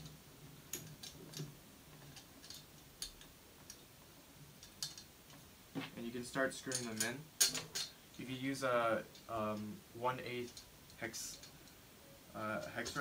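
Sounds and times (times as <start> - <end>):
small metal parts clicking: 0.0 - 3.9, 4.6 - 5.4, 6.6 - 8.0, 10.4 - 11.8.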